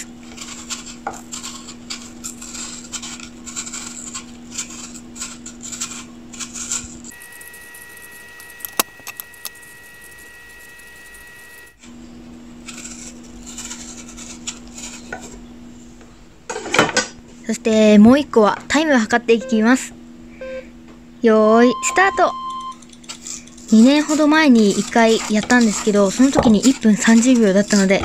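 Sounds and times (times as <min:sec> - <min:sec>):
knife paring apple: 0:00.0 - 0:12.0, 0:12.6 - 0:15.6, 0:22.8 - 0:28.0
low hum: 0:00.0 - 0:16.4, 0:19.2 - 0:28.0
higher steady tone: 0:19.3 - 0:22.9.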